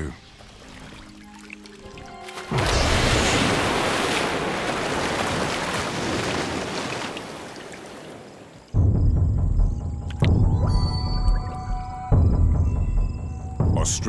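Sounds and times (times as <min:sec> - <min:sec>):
big splash in a river: 0:02.4 - 0:08.4.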